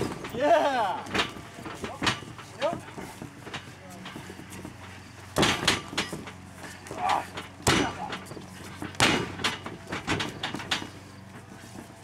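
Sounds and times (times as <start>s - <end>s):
wrestlers slapping and thudding: 6.9s - 8.2s, 8.8s - 10.8s.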